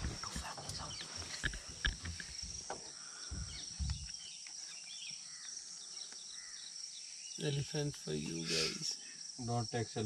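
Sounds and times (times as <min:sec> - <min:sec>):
low thumps: 0:00.0 - 0:04.1
faint bird chirps: 0:00.0 - 0:09.4.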